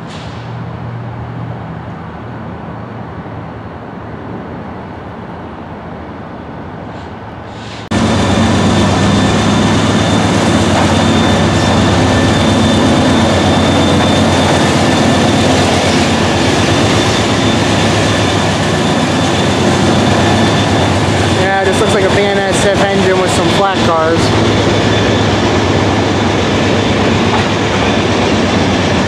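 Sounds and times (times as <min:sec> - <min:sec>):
diesel locomotive rumble: 0:06.9 - 0:29.0
steady high whine: 0:07.9 - 0:29.0.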